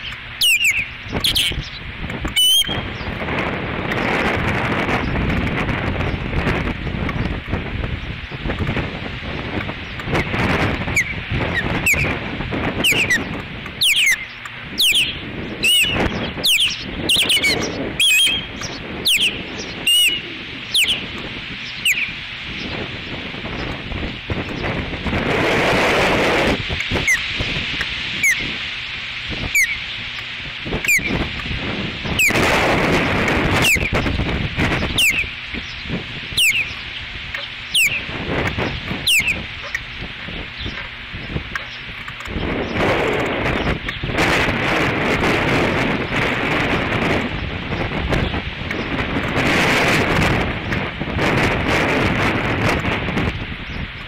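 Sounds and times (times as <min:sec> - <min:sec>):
osprey alert whistles: 0:00.0 - 0:01.6, 0:02.4 - 0:03.0, 0:12.8 - 0:21.1, 0:36.4 - 0:36.8, 0:37.7 - 0:38.1, 0:39.0 - 0:39.4
osprey alert calls: 0:00.0 - 0:03.2, 0:09.3 - 0:25.2, 0:26.2 - 0:42.8
wind noise on microphone: 0:00.0 - 0:54.0.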